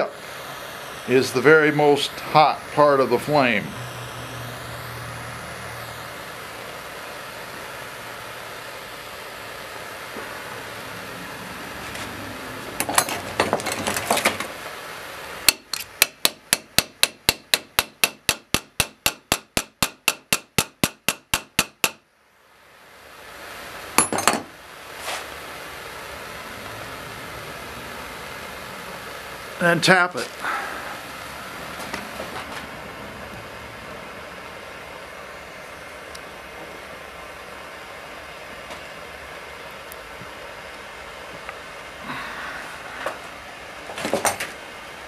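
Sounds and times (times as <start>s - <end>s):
propane torch hissing: 0.0s - 19.0s, 22.3s - 45.0s
sharp hammer taps: 15.5s - 22.0s.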